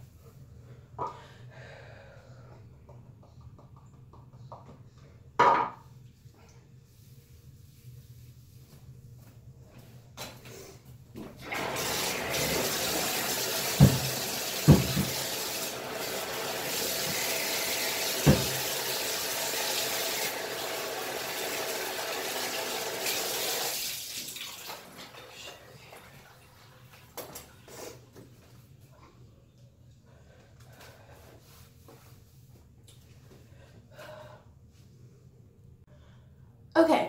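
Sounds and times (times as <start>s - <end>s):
water running: 11.2s - 27.9s.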